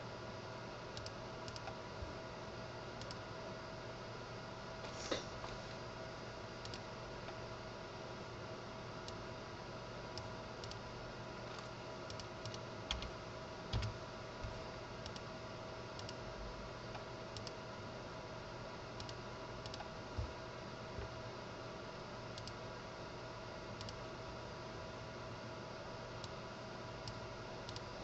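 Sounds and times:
faint electrical hum: 0.0s - 28.0s
keyboard keystrokes: 12.1s - 13.1s, 13.7s - 15.2s
mouse clicks: 23.8s - 24.0s, 27.0s - 27.9s.

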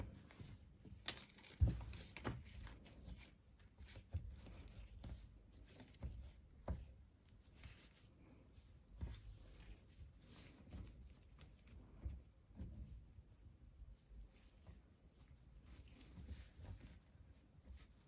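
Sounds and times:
paper yarn rustling and crinkling: 0.0s - 18.0s.

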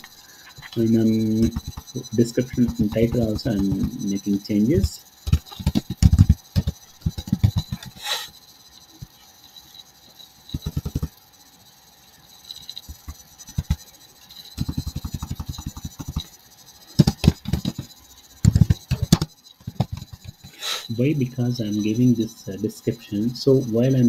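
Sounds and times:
computer keyboard typing: 0.5s - 8.2s, 10.5s - 11.2s, 12.5s - 21.0s.

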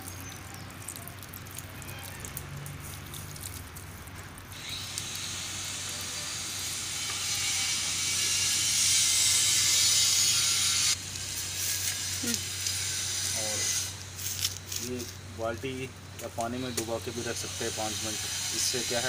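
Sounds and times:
water pouring onto soil: 0.0s - 7.3s.

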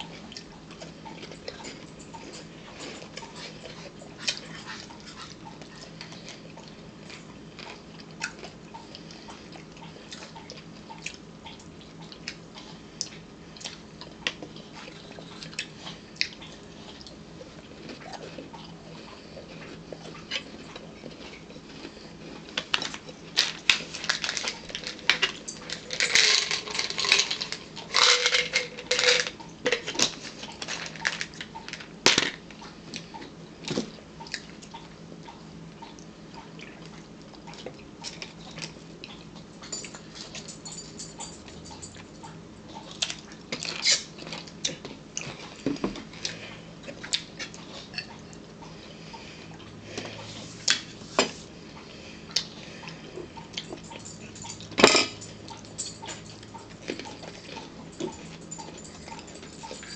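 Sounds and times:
steady low hum: 0.0s - 59.9s
crackers crunching: 13.1s - 32.7s
cutlery and dishes clinking: 53.6s - 59.9s.

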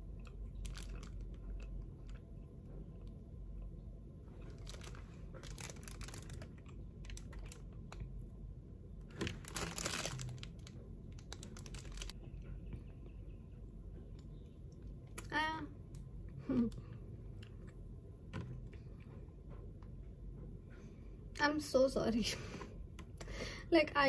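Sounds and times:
plastic wrapper crinkling: 0.2s - 1.9s, 4.4s - 8.1s, 9.2s - 12.2s.

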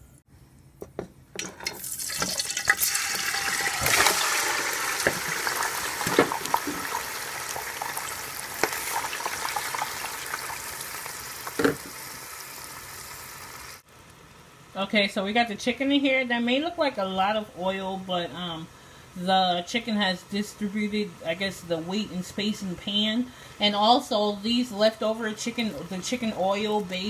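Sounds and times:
chicken sizzling in hot oil: 1.6s - 13.8s.

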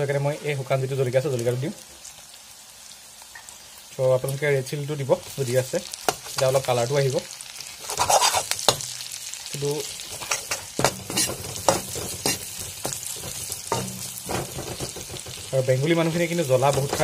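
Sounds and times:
onions sizzling in hot oil: 0.0s - 17.0s
metal spatula scraping a pan: 7.8s - 9.1s, 9.8s - 17.0s.

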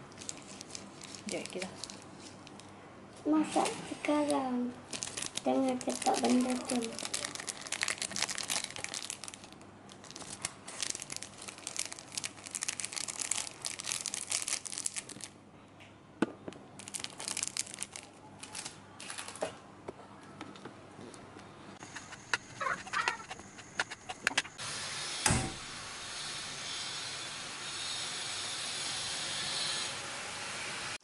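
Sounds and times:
plastic sachets crinkling and tearing: 0.1s - 2.7s, 3.4s - 15.4s, 16.8s - 19.5s.

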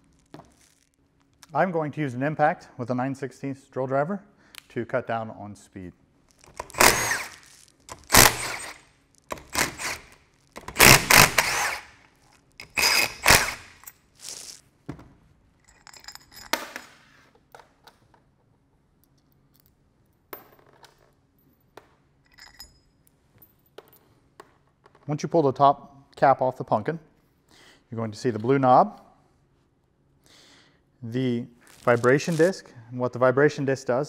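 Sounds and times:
impact driver bursts: 6.5s - 12.0s, 12.6s - 13.9s
metallic clinks and knocks: 15.6s - 18.2s, 19.0s - 25.0s.

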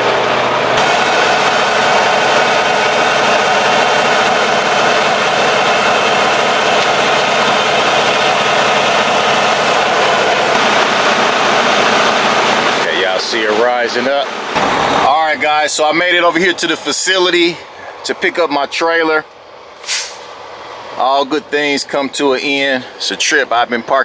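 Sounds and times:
diesel truck engine idling: 0.0s - 24.0s
rushing hiss: 19.8s - 20.3s.

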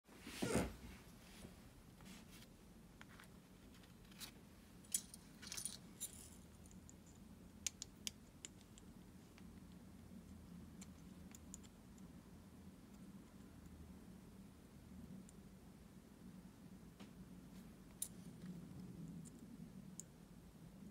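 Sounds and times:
small metal parts clicking: 4.1s - 8.9s, 10.8s - 11.8s.

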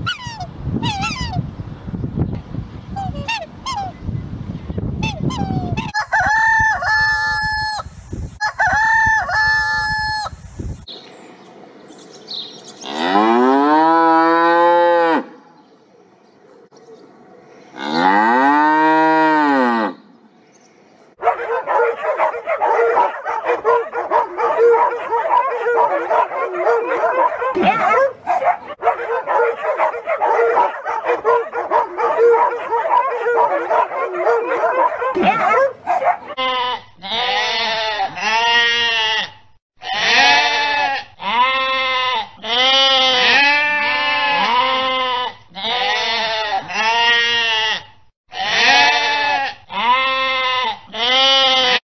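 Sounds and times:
cow mooing: 12.8s - 15.4s, 17.8s - 20.0s
many dogs barking: 21.2s - 36.4s.

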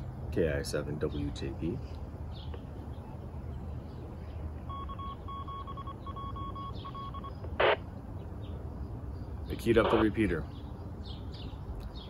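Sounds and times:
radio beeps: 4.7s - 7.8s, 9.8s - 10.2s.

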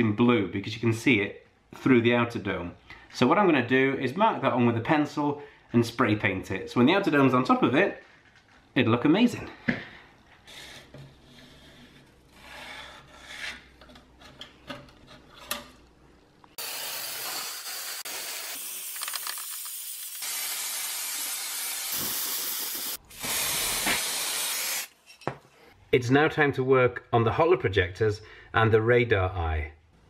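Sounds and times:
spray paint can hissing: 16.6s - 24.9s.

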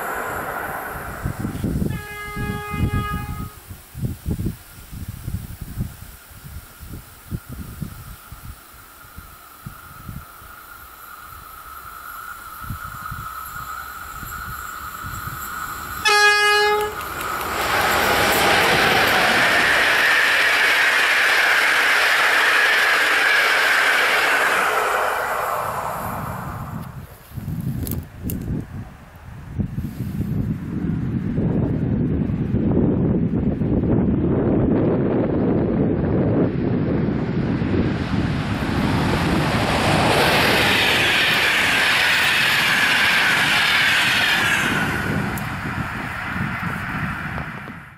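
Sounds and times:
wind buffeting microphone: 0.0s - 10.6s, 11.2s - 47.9s
hissing rail noise: 0.0s - 31.2s, 36.4s - 47.9s
train wheels rushing on track: 0.0s - 47.9s.

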